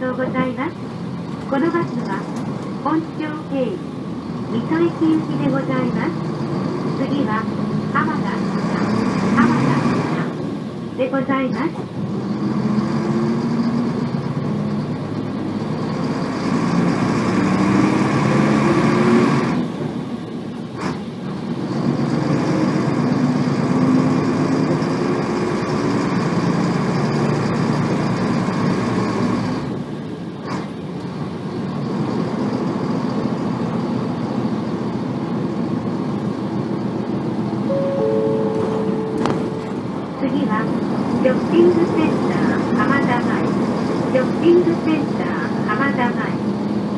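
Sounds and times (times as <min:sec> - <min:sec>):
bus diesel engine accelerating: 0:00.0 - 0:46.9.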